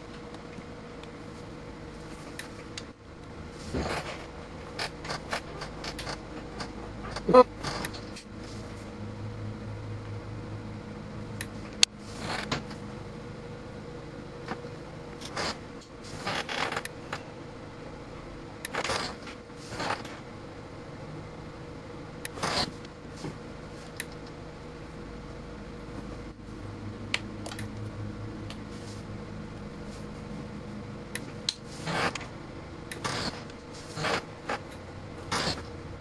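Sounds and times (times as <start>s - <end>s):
steady electrical hum: 0.0s - 36.0s
electrical snaps and clicks: 2.3s - 8.3s, 18.6s - 20.2s, 23.9s - 24.4s, 27.1s - 28.6s, 32.9s - 35.8s.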